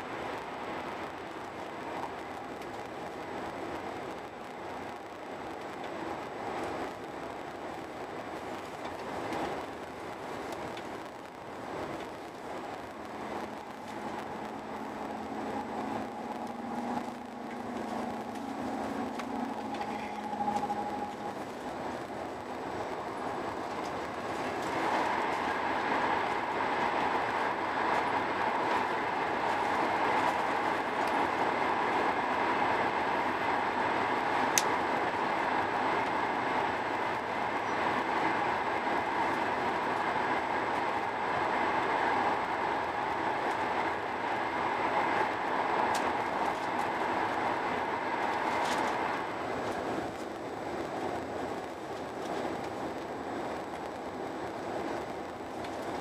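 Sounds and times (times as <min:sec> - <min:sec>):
high-speed train running noise: 0:00.0 - 0:56.0.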